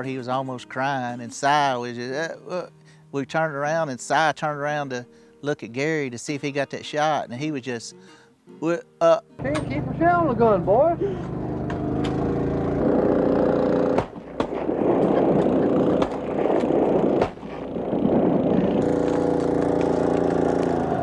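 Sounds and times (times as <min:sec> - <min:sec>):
motor running: 0:09.4 - 0:21.0.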